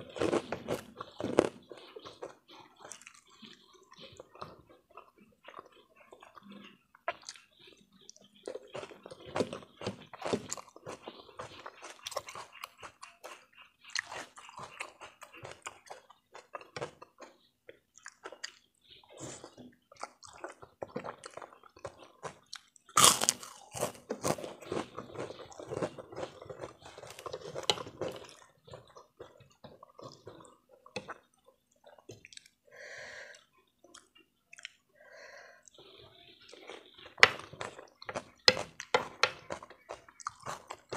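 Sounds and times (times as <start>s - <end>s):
chewing noodles: 0.0s - 32.7s, 33.3s - 34.9s, 35.6s - 40.9s
wet mouth clicks and smacks: 33.8s - 34.8s.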